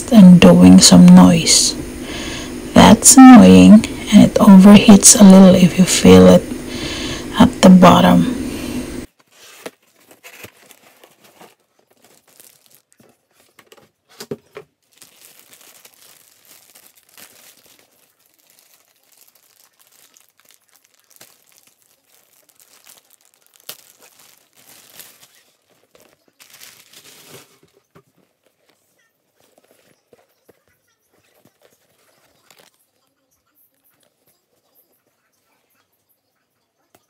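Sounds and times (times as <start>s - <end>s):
plastic wrapping crinkling and tearing: 9.0s - 33.1s.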